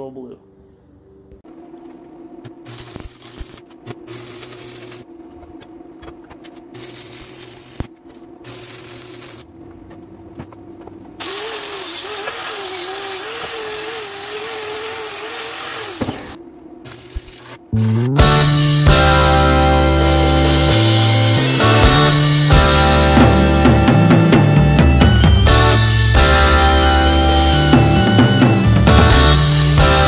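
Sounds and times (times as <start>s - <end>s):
welding arc crackling: 2.5s - 5.1s, 6.0s - 9.5s, 11.2s - 22.8s, 25.4s - 27.7s, 29.2s - 30.0s
power tool whining: 11.2s - 16.4s.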